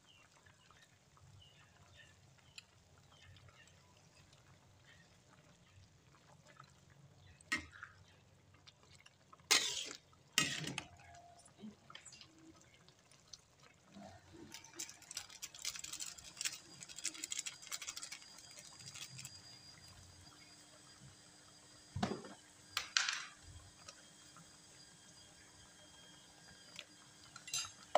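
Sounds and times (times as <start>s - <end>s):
stew bubbling in a wok: 0.0s - 22.8s, 23.4s - 27.9s
metal ladle stirring and splashing: 9.5s - 11.1s.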